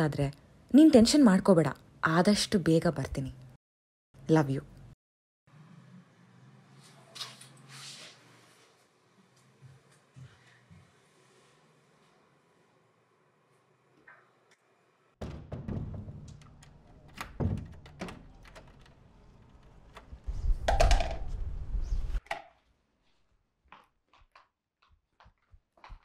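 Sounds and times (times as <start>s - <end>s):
faint footsteps: 9.3s - 12.2s, 23.0s - 26.0s
door and lock knocking: 15.2s - 19.0s
lock rattling: 15.2s - 20.2s.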